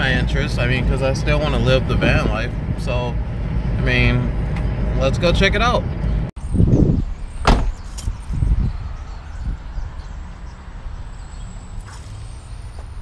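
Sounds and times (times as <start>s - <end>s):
low outdoor rumble: 0.0s - 6.6s
car door slamming: 7.4s - 7.8s.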